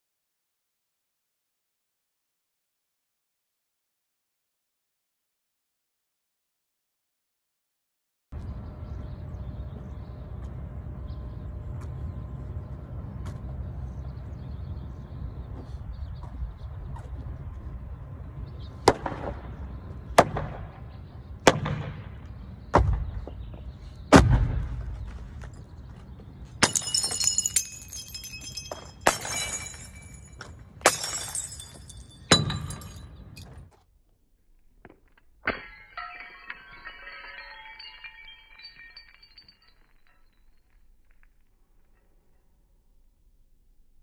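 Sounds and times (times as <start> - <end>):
wind rumble on microphone: 12.2 - 18.8
glass jars and bottles smashing: 26.6 - 33.6, 35.5 - 40.5
glass tinkling: 26.6 - 33.6, 35.6 - 40.6.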